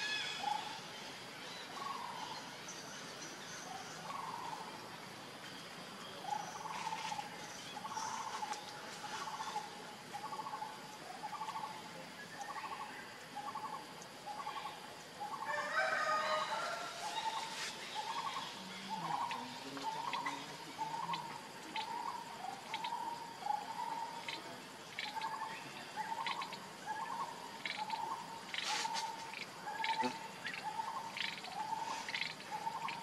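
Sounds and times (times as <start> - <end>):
trilled animal calls: 16.4 - 33.0.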